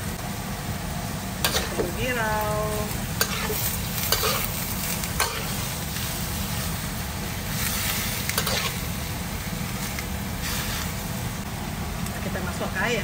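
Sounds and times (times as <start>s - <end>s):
meat sizzling in a wok: 0.0s - 13.0s
metal spatula scraping a wok: 3.2s - 6.8s, 7.5s - 8.9s.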